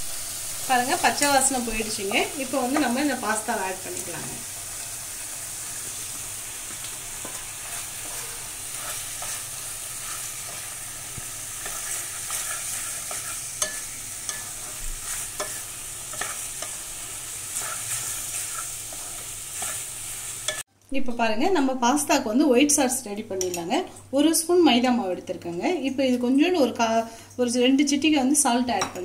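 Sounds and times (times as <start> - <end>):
sauce sizzling in a pan: 0.0 - 20.7
spatula scraping and knocking pan: 6.7 - 16.8.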